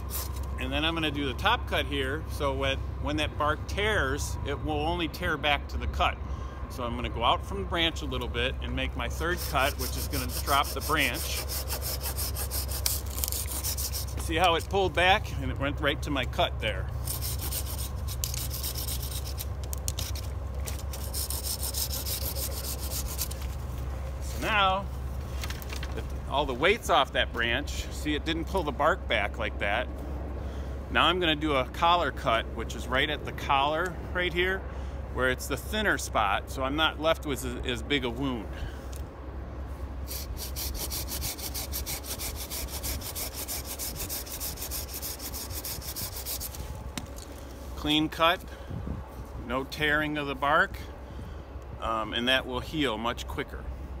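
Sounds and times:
hand saw rasping through wood: 9.2 - 14.6, 17.0 - 19.4, 20.9 - 23.4, 40.1 - 46.7.

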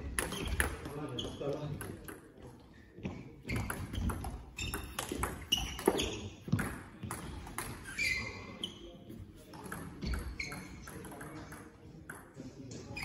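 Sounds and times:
shoes squeaking on floor: 0.0 - 11.1, 12.7 - 13.0
ball bouncing on table: 3.0 - 7.9, 9.5 - 12.4.

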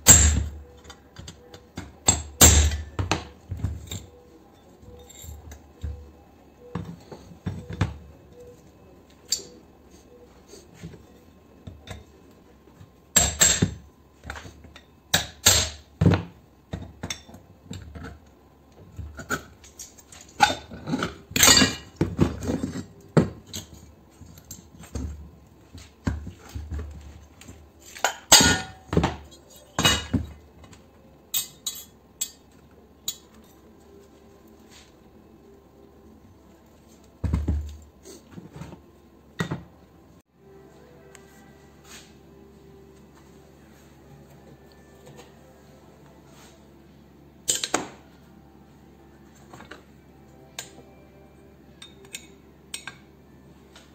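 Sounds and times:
metal clanks and knocks: 26.0 - 30.4.

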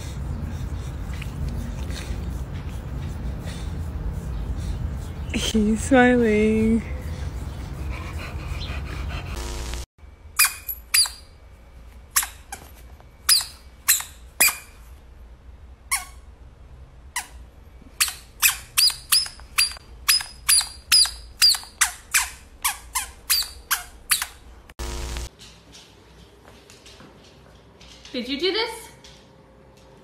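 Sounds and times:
squeaky toy squeaking: 10.4 - 11.3, 13.3 - 14.8, 15.9 - 16.2, 17.2 - 17.4, 18.0 - 24.4.

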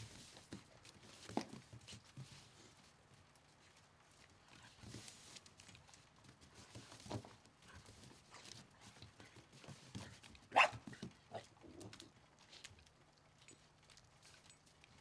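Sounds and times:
dog paw steps and scuffling: 0.0 - 15.0
dog barking: 10.5 - 11.4.

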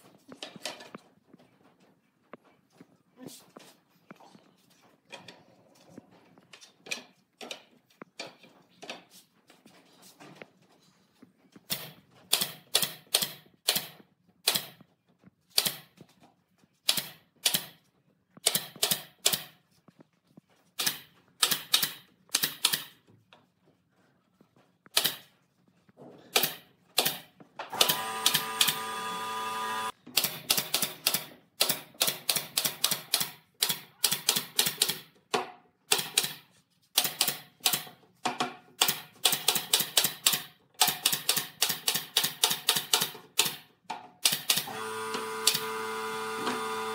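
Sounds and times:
nail gun firing into wood: 11.7 - 14.8, 18.4 - 19.5, 26.4 - 28.8, 38.8 - 44.8.

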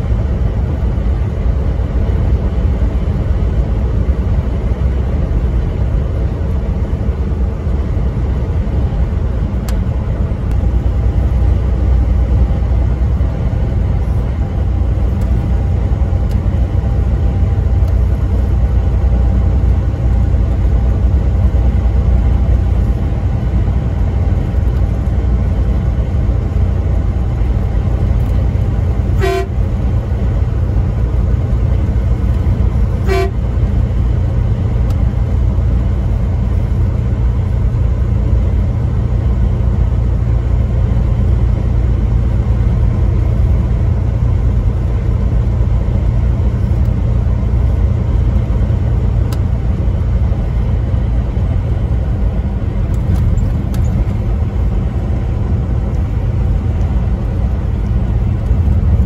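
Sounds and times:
truck engine and road noise: 0.0 - 59.0
truck horn toots: 29.0 - 29.8, 32.9 - 33.6.

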